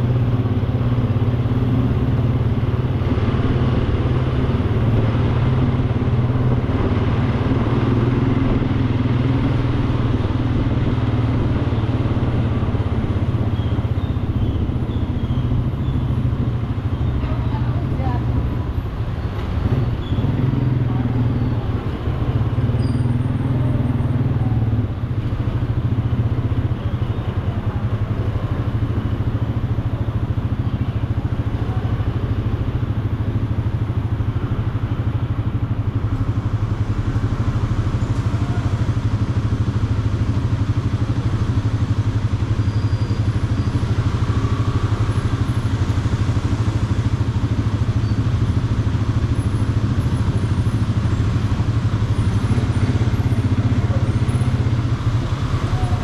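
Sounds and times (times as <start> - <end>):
motorcycle engine idling: 0.0 - 56.0.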